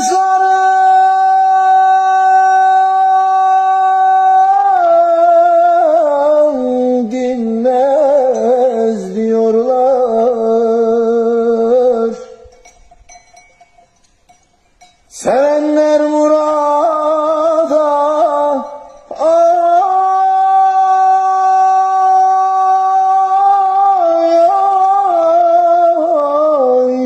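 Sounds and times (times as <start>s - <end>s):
man singing unaccompanied: 0.0s - 12.5s, 15.1s - 27.0s.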